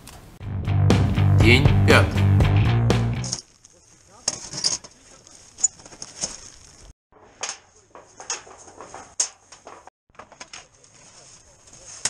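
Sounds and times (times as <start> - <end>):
camping gear rustling: 3.2 - 12.0.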